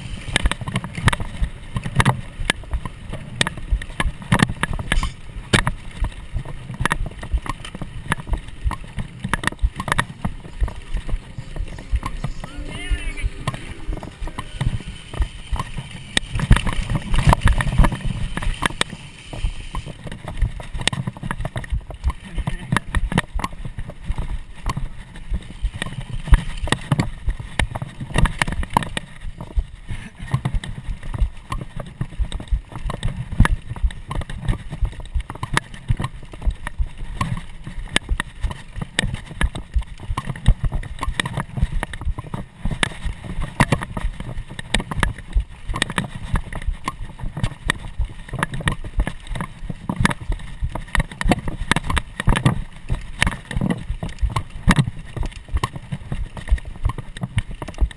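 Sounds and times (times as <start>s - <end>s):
mountain bike rattling over dirt: 0.0s - 57.9s
low rumble: 7.3s - 18.6s.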